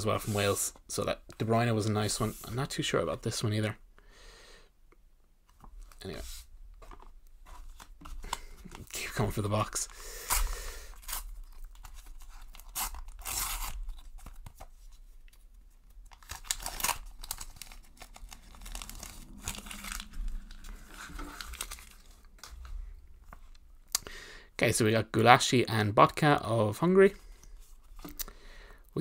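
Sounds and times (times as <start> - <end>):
wrapper being torn open: 10.3 - 14.6, 16.0 - 22.6
plastic wrapper crinkling: 15.8 - 23.6.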